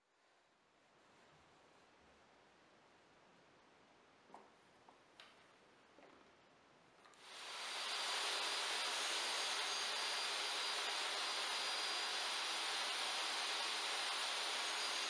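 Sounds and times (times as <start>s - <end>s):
table saw motor whining: 7.3s - 15.0s.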